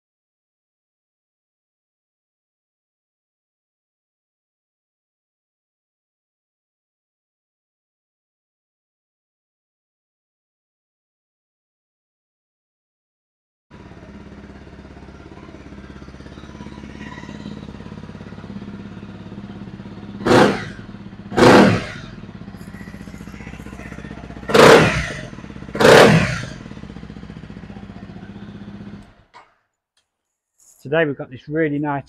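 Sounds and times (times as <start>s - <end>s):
motorcycle engine idling: 13.7s - 29.4s.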